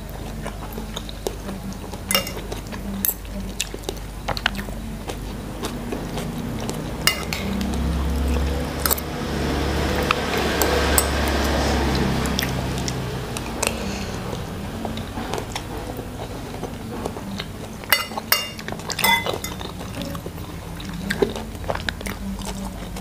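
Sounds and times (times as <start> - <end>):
chewing and wet mouth sounds: 0.0 - 23.0
metal cutlery clinking on a plate: 2.1 - 3.3, 7.0 - 7.7, 17.8 - 19.8.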